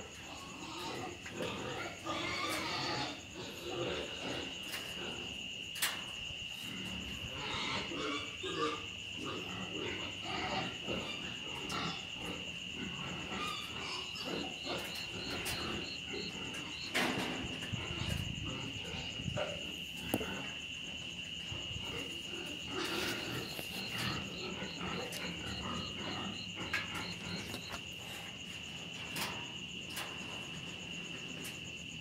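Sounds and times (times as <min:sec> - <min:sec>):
rabbits crunching grain: 0:21.5 - 0:31.2.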